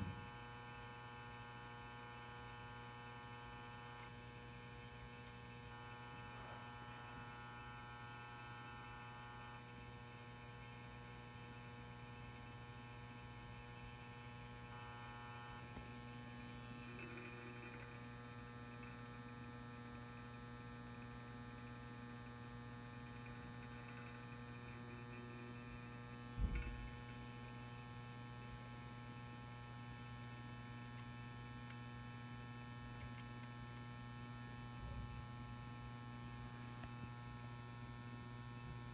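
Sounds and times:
lamp ballast mains hum: 0:00.0 - 0:38.9
low thump: 0:26.4 - 0:26.9.

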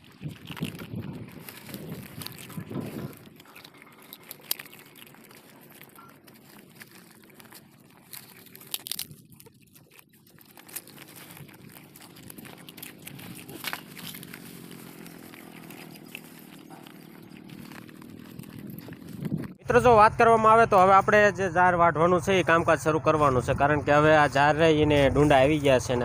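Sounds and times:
puppies crunching and chewing: 0:00.0 - 0:19.7.

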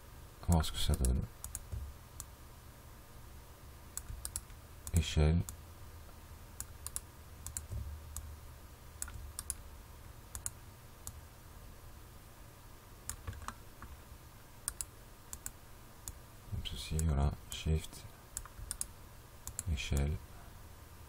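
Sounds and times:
low steady hum: 0:00.0 - 0:21.0
computer mouse and keyboard clicks: 0:04.0 - 0:05.6, 0:06.6 - 0:08.2, 0:09.0 - 0:09.6, 0:13.1 - 0:13.9.

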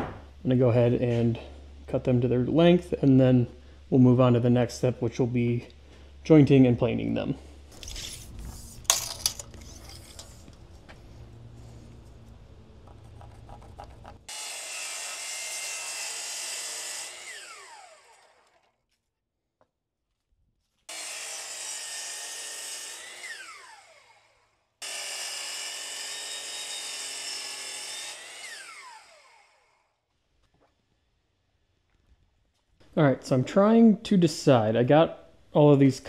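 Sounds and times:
power saw cutting wood: 0:14.3 - 0:18.7, 0:20.9 - 0:29.8
saw blade spinning down: 0:14.3 - 0:18.7, 0:20.9 - 0:29.8.

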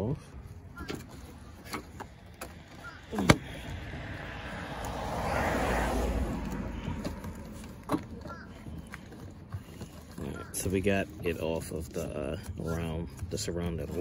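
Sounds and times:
rush of noise: 0:03.0 - 0:07.8.

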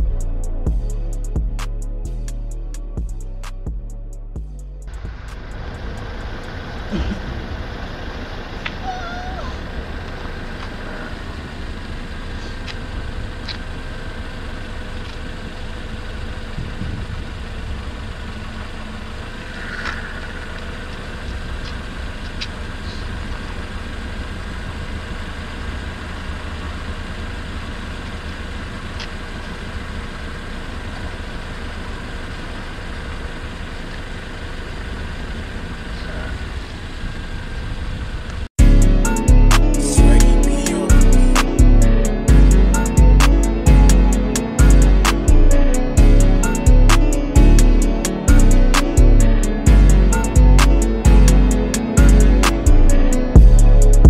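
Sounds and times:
city traffic rumble: 0:00.0 - 0:54.0.

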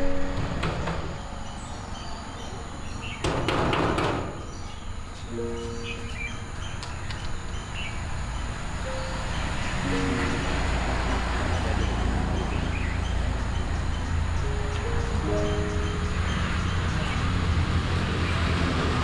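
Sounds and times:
birds chirping: 0:00.0 - 0:18.5
sustained musical chord: 0:05.2 - 0:06.7, 0:08.6 - 0:12.1, 0:13.1 - 0:17.8.

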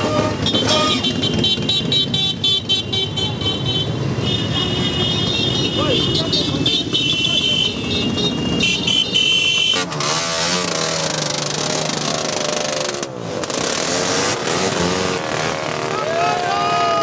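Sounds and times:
motorcycles revving past: 0:09.8 - 0:17.0.

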